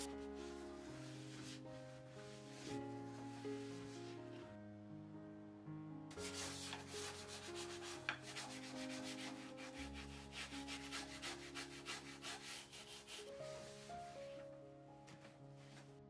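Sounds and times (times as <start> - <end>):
brush scrubbing glass: 6.2 - 14.1.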